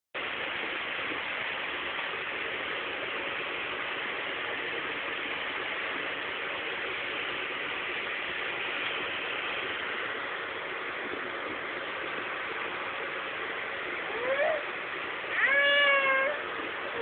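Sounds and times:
steady hiss: 0.2s - 17.0s.

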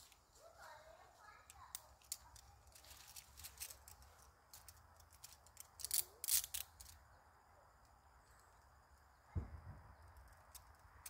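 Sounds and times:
handcuffs clicking and rattling: 1.7s - 7.0s.

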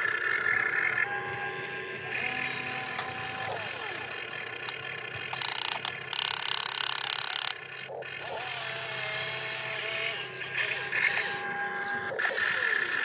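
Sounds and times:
electric motor whine: 0.0s - 13.0s
loud rattling grind: 2.1s - 11.9s.

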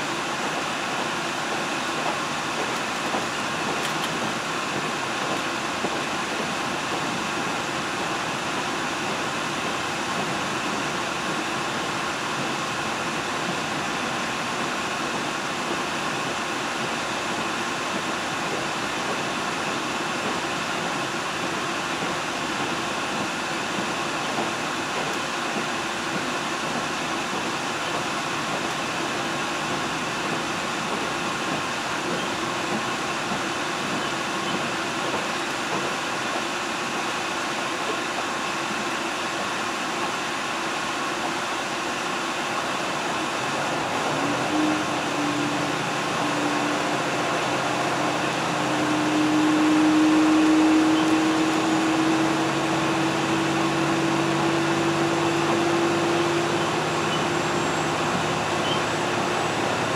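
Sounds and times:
train wheels on rail: 0.0s - 59.9s
engine tone rising in pitch: 43.6s - 59.9s.

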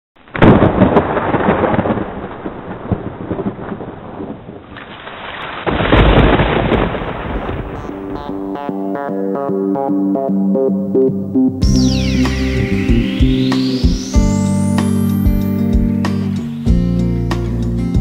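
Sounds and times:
thunder rolling: 0.3s - 8.8s.

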